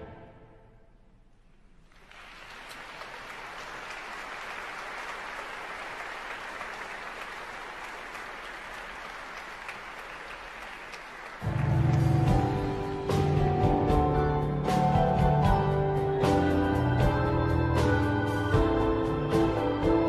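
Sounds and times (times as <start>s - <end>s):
audience applauding: 1.8s - 12.7s.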